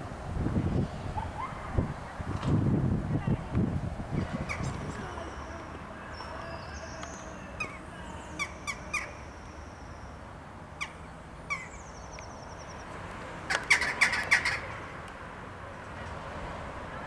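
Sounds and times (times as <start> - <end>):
jackdaws calling: 4.2 - 14.8.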